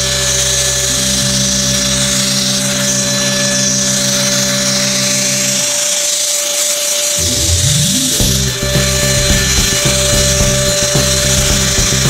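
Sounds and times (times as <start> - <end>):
hand vacuum cleaner motor running: 0.0 - 12.0
low hum: 7.2 - 12.0.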